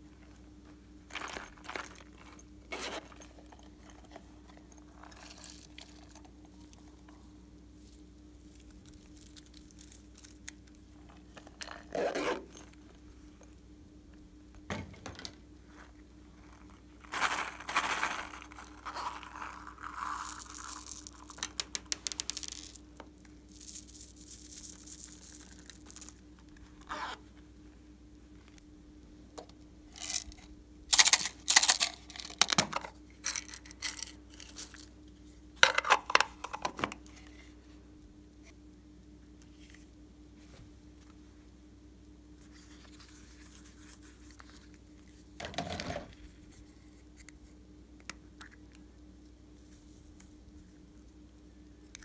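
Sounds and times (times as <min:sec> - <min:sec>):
faint steady hum: 0:00.0 - 0:52.0
plastic beads dropping into slime: 0:17.1 - 0:22.8, 0:23.5 - 0:26.2.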